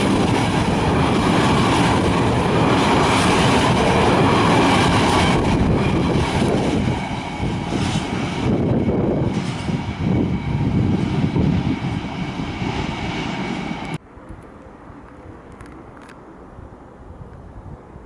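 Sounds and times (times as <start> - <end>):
freight train rolling past: 0.0 - 14.0.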